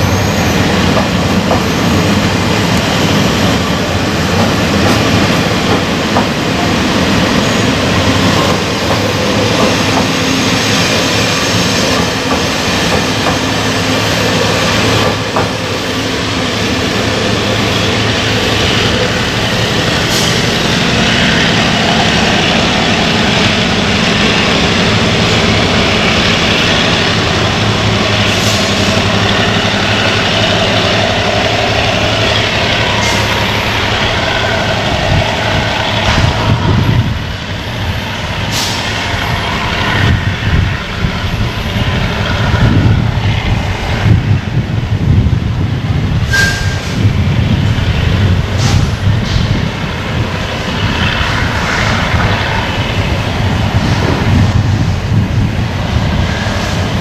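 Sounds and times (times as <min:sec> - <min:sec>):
diesel locomotive engine running: 0:00.0 - 0:57.0
train coaches rolling over track: 0:00.0 - 0:57.0.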